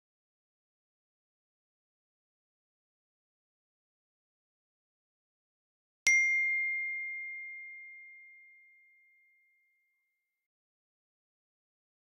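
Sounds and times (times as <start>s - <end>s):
bell-like chime: 6.1s - 9.9s.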